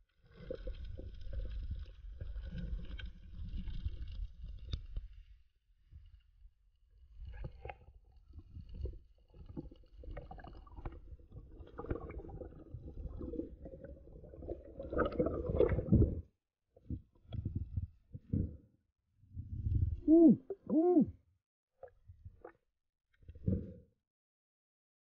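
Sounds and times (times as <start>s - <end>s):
muffled underwater rumbling and gurgling: 7.0s - 21.1s.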